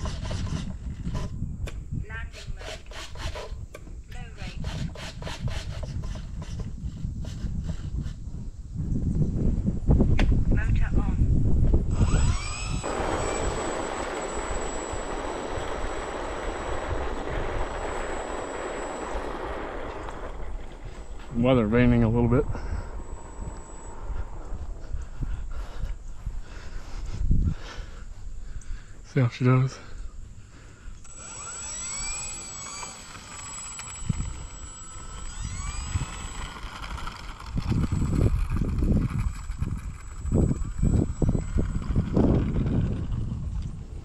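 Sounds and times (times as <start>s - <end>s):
electric motor and propeller: 0.0s - 9.6s, 11.5s - 27.4s, 30.9s - 44.0s
wind rumbling on microphone: 0.0s - 29.0s, 29.8s - 44.0s
thin high whine: 11.9s - 26.2s, 31.0s - 43.8s.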